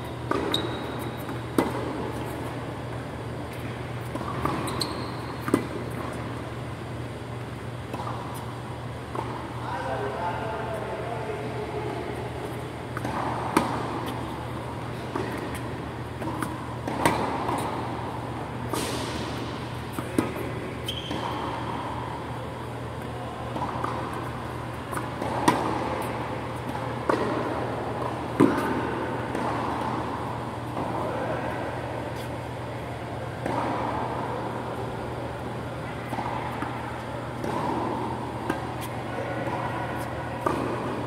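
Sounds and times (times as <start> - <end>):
steady low hum: 0.0 - 41.0
tennis ball hits and bounces: 0.2 - 6.4, 12.4 - 22.4, 23.5 - 31.0, 33.4 - 35.1, 36.0 - 41.0.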